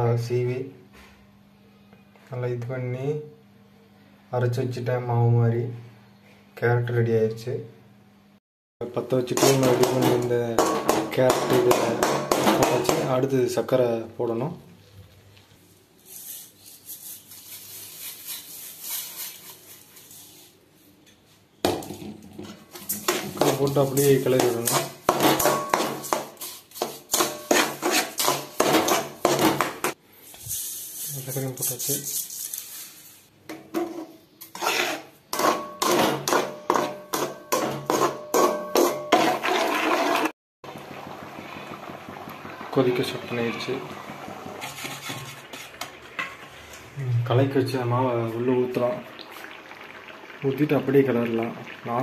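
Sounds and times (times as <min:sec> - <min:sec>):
spoon scraping metal pot: 0:09.3 - 0:13.1, 0:22.4 - 0:32.7, 0:33.7 - 0:40.3, 0:44.5 - 0:46.8
steel spatula clanking on pan: 0:09.3 - 0:13.1, 0:22.7 - 0:30.0, 0:35.3 - 0:39.6
sugar pouring rustling hiss: 0:15.4 - 0:20.6, 0:30.2 - 0:33.3.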